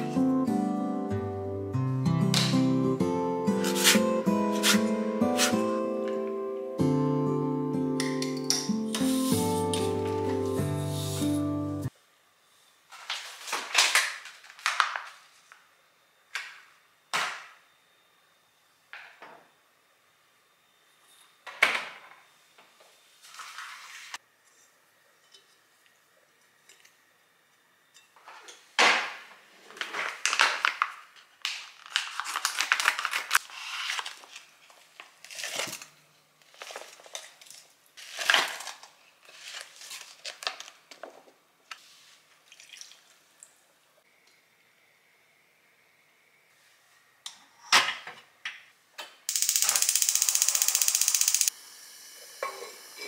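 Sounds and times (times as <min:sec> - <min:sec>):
plastic packaging crinkling: 0:29.7 - 0:40.9.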